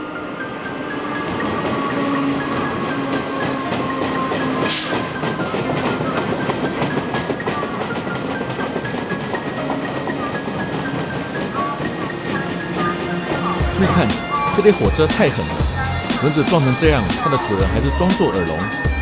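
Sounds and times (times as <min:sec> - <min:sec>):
train wheels clattering: 0:01.2 - 0:14.8.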